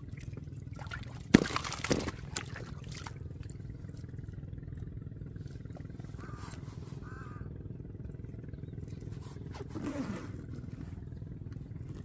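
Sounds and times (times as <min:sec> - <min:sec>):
water splashing: 0:00.0 - 0:04.4.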